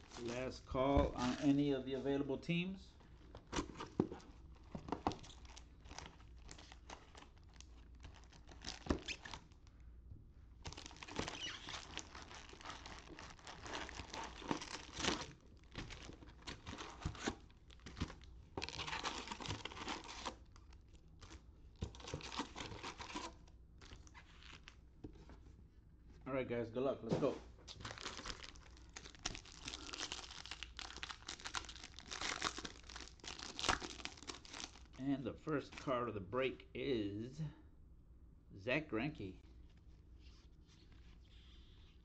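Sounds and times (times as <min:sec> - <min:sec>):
foil packs crinkling: 0:03.4 - 0:09.6, 0:10.6 - 0:24.8, 0:27.7 - 0:35.0.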